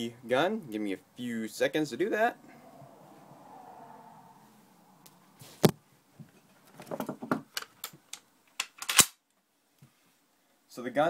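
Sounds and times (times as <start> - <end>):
rifle action metallic clicks: 7.6 - 9.2
loud sharp snaps of rifle bolt: 8.1 - 9.2.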